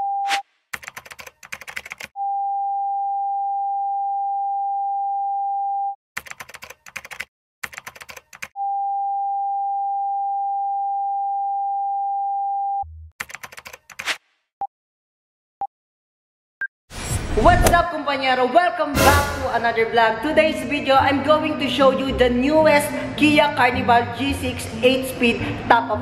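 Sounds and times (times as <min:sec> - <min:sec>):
typewriter keystrokes: 0:00.8 - 0:02.1, 0:06.2 - 0:08.5, 0:13.2 - 0:14.2.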